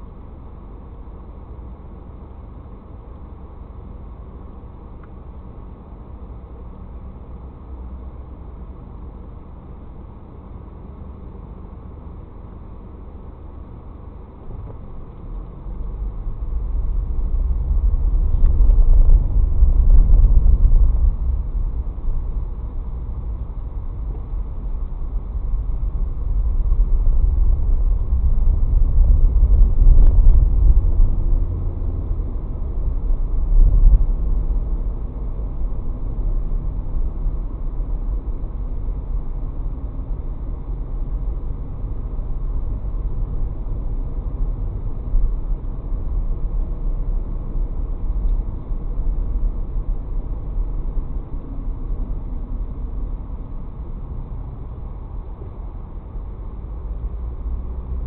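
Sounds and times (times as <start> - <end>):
car engine and road rumble: 0.0 - 58.0.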